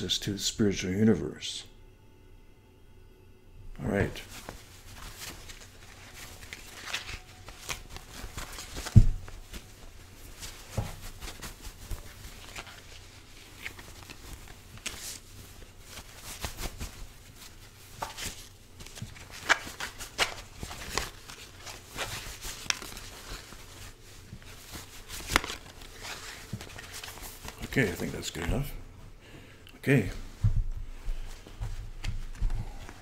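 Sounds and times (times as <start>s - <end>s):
cards being shuffled: 4.2s - 28.2s.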